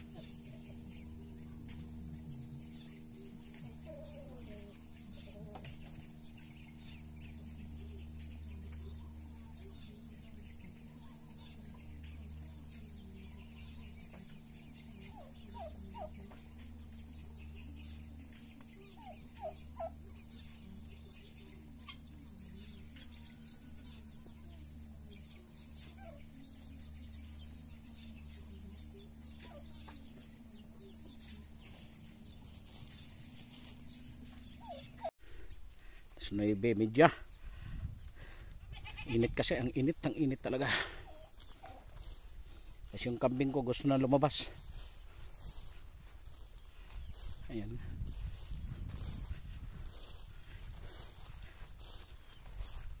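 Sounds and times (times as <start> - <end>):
turkeys calling: 14.8 - 17.2, 18.3 - 22.2, 25.2 - 36.2, 39.9 - 42.3, 48.1 - 53.0.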